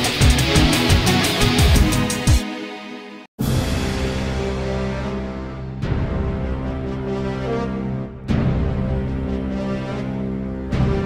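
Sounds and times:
background music sustained tones: 0.0s - 11.0s
loud hit: 3.4s - 6.5s.

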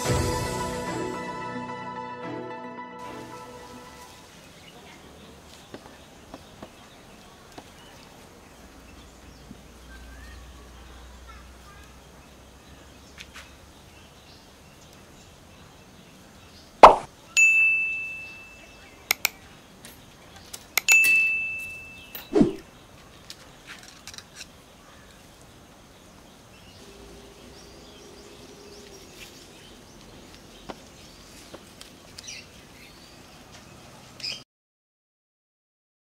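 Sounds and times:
bell-like dings: 17.4s - 18.8s, 20.8s - 22.3s.

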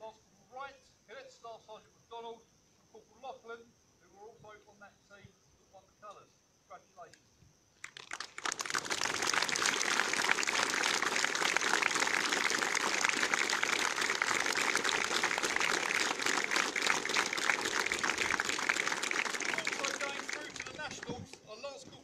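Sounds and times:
crowd applause: 7.8s - 21.2s.

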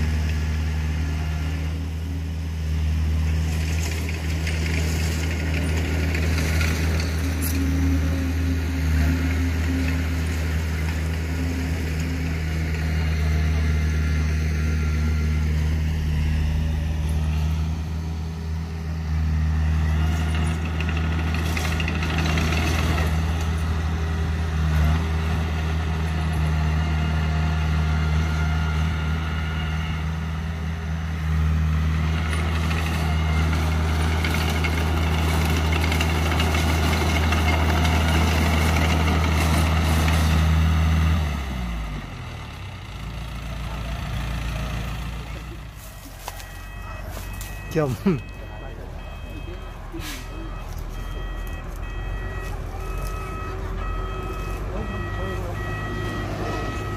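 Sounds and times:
bulldozer diesel engine running: 0.0s - 56.9s.

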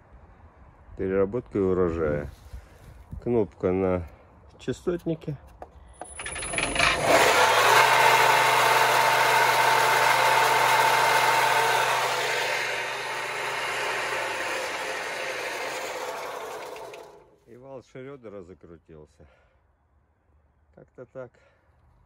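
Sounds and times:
shredder motor whirring: 6.0s - 17.4s.

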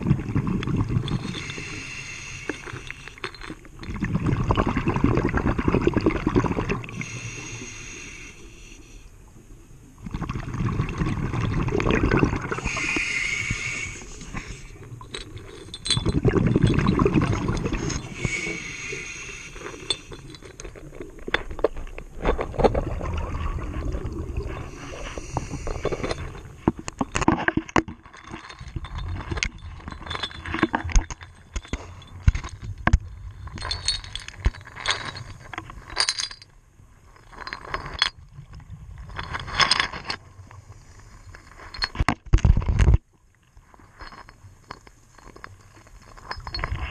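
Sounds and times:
hard objects clicking and clinking: 2.5s - 3.7s, 15.0s - 18.4s, 19.6s - 22.4s, 25.8s - 36.5s, 37.2s - 38.2s, 39.1s - 40.2s, 41.6s - 43.0s, 44.0s - 46.9s
underwater bubbles rushing: 3.9s - 7.0s, 10.0s - 12.7s, 22.5s - 25.8s.

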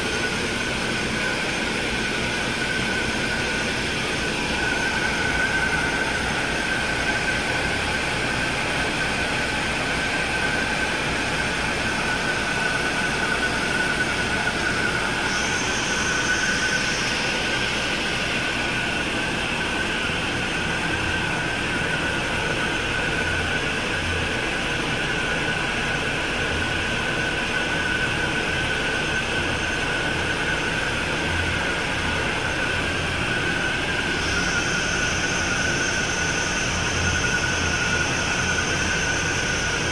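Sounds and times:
high-pitched machinery whine: 0.0s - 39.9s
ship diesel engine drone: 0.0s - 39.9s.

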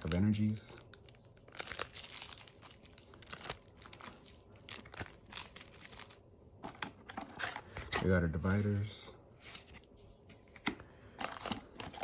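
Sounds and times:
plastic wrapping crinkling: 0.0s - 6.2s, 11.2s - 12.0s.

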